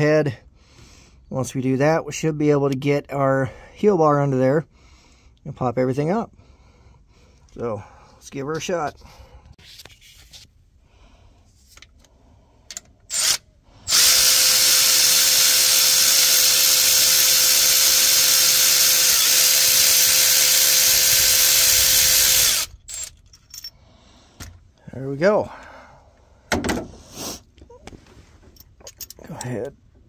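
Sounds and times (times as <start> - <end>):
electric ratchet running: 13.1 - 23.1.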